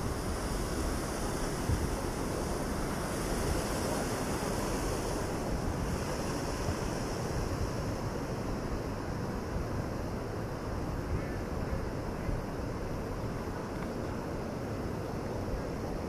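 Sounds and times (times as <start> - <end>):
wind buffeting microphone: 0.0 - 9.7
river water rushing through weir: 0.0 - 16.0.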